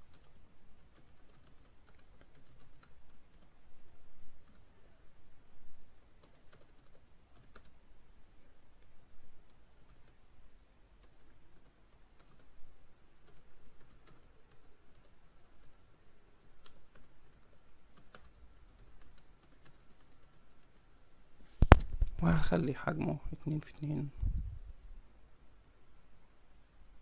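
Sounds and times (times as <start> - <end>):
typing on a computer keyboard: 0.0 - 4.7, 5.8 - 8.0, 9.5 - 10.2, 11.0 - 12.6, 13.2 - 20.9.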